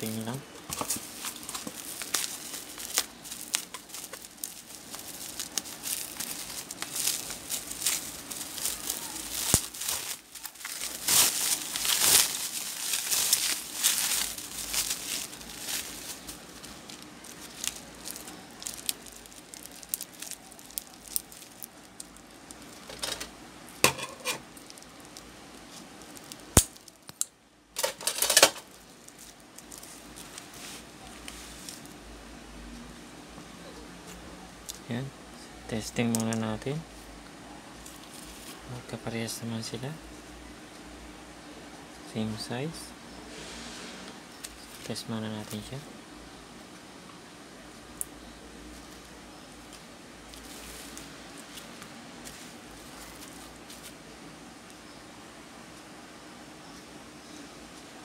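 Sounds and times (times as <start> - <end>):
bubble wrap crinkling: 0.0 - 32.0, 37.8 - 38.9, 44.3 - 45.8, 47.7 - 54.1.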